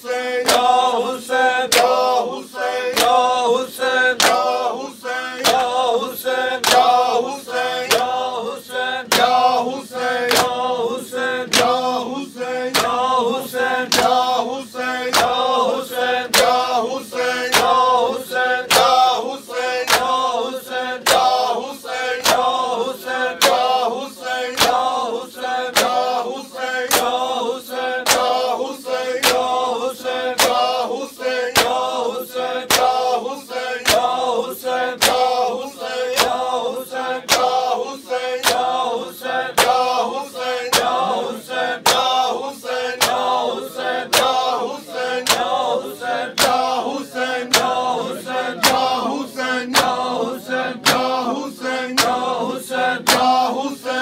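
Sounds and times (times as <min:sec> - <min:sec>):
men chanting a lament: 0:00.0 - 0:54.0
hands slapping chests: 0:00.4 - 0:00.8, 0:01.7 - 0:02.1, 0:02.9 - 0:03.3, 0:04.2 - 0:04.6, 0:05.4 - 0:05.8, 0:06.6 - 0:07.0, 0:10.2 - 0:10.6, 0:19.8 - 0:20.2, 0:26.9 - 0:27.2, 0:28.0 - 0:28.4, 0:29.2 - 0:29.5, 0:30.4 - 0:30.7, 0:31.5 - 0:31.9, 0:32.7 - 0:33.0, 0:33.8 - 0:34.2, 0:35.0 - 0:35.4, 0:36.1 - 0:36.5, 0:37.2 - 0:37.6, 0:38.4 - 0:38.8, 0:39.6 - 0:40.0, 0:41.8 - 0:42.3, 0:43.0 - 0:43.3, 0:44.1 - 0:44.5, 0:45.2 - 0:45.6, 0:46.4 - 0:46.8, 0:47.4 - 0:47.8, 0:48.6 - 0:49.0, 0:49.7 - 0:50.1, 0:50.8 - 0:51.2, 0:53.0 - 0:53.4.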